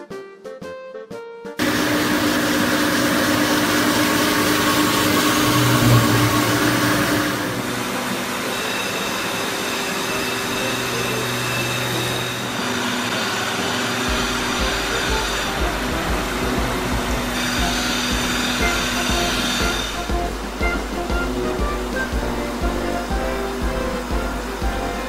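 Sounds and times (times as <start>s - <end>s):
grinding machine hiss with whine: 1.6s - 25.0s
low rumble: 5.3s - 7.7s.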